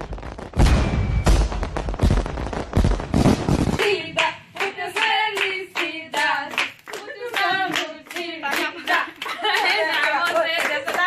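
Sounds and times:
fireworks booming: 0.0s - 4.1s
group singing a celebration song: 3.7s - 11.0s
people clapping along: 3.8s - 11.0s.

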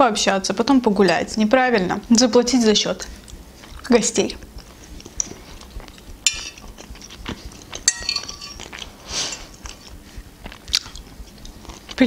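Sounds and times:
fork clinking on a plate: 6.3s - 9.8s.

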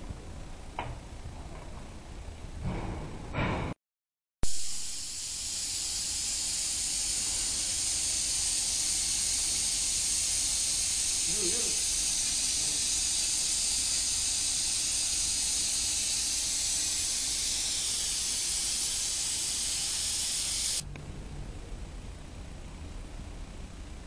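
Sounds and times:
loud steady hiss: 4.4s - 20.9s.

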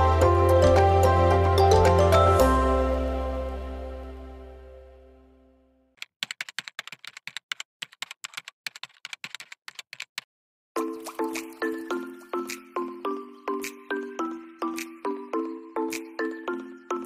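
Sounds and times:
chiming mallet percussion music: 0.0s - 3.5s, 10.8s - 17.0s
background music: 0.0s - 5.9s, 10.8s - 17.0s
keyboard typing clicks: 6.0s - 10.3s.

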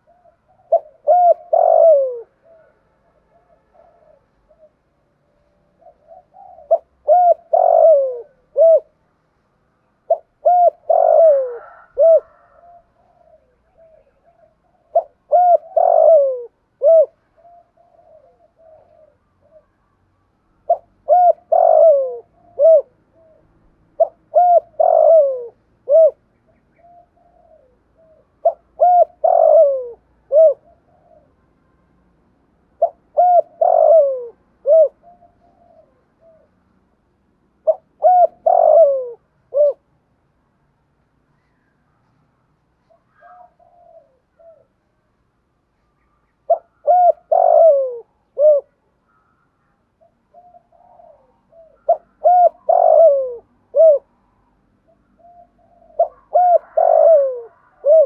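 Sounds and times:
dove cooing: 0.0s - 9.0s, 10.0s - 20.0s, 20.6s - 31.4s, 32.7s - 36.7s, 37.6s - 39.9s, 42.8s - 44.9s, 46.4s - 49.4s, 50.0s - 54.2s, 54.9s - 58.0s
soft quiet coo notes: 0.0s - 9.2s, 9.8s - 36.9s, 37.6s - 40.0s, 41.2s - 58.0s.

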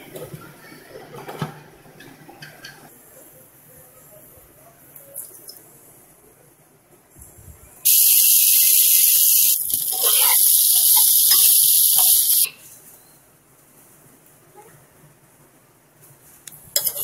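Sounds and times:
vegetables sizzling in hot oil: 7.9s - 12.5s.

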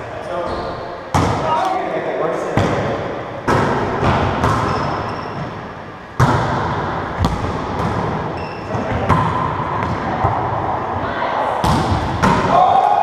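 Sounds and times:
ball slaps and thuds with echo: 0.5s - 1.7s, 2.5s - 5.6s, 6.2s - 10.8s, 11.6s - 12.8s.

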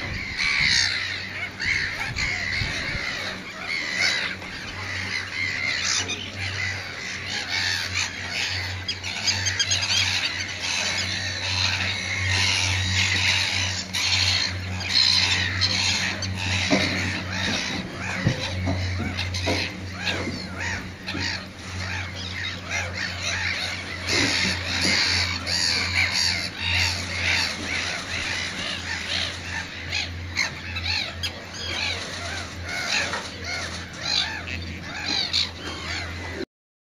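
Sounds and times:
low hum: 0.0s - 36.4s
gulls calling harshly: 0.0s - 36.5s.

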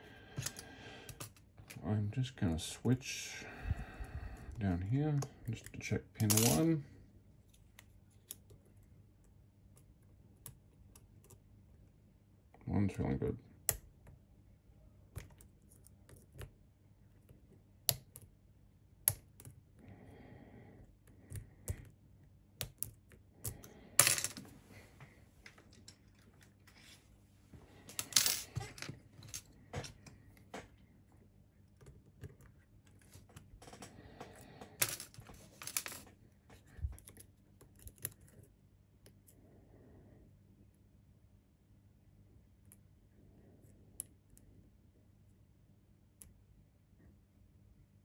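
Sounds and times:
tools clattering: 6.3s - 6.7s.

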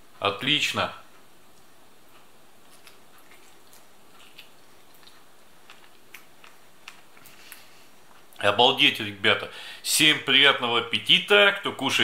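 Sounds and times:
low room noise: 0.0s - 12.0s
light eating clicks: 1.2s - 8.4s.

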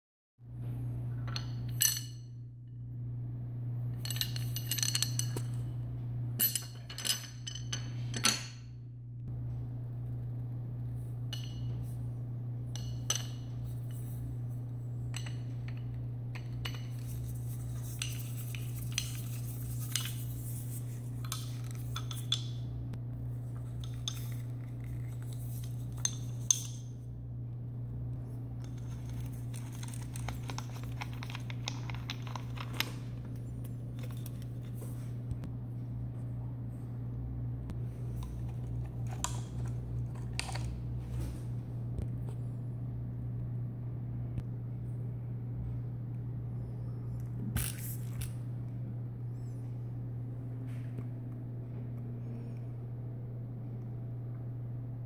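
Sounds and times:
steady low hum: 0.4s - 55.0s.

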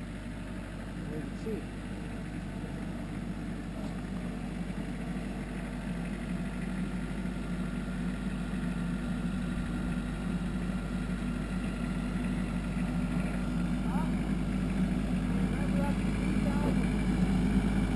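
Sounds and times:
tractor engine running: 0.0s - 17.9s.

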